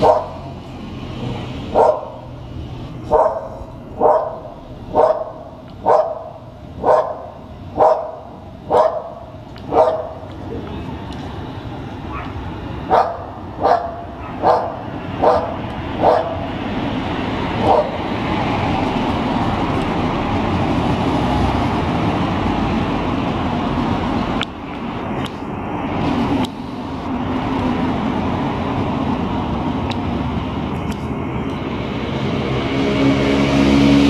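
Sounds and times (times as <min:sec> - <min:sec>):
dog barking: 0:00.0 - 0:00.5, 0:01.7 - 0:02.2, 0:03.1 - 0:10.3, 0:12.1 - 0:16.5, 0:17.6 - 0:18.0
street traffic: 0:00.0 - 0:34.0.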